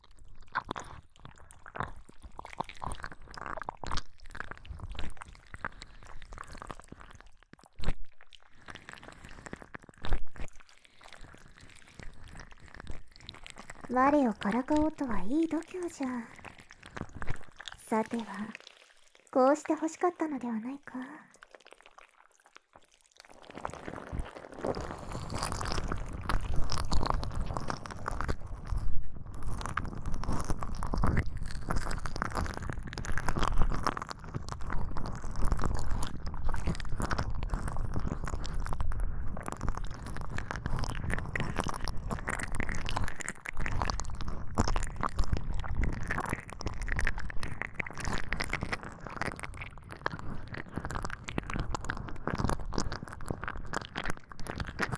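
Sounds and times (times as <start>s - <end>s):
crackly scratching and rubbing: 0.0s - 54.9s.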